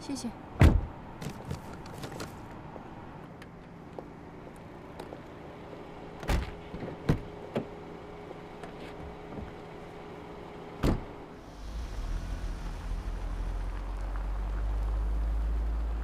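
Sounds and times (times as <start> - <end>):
car doors shutting: 0.6 - 2.3, 6.2 - 7.8, 10.8 - 12.0.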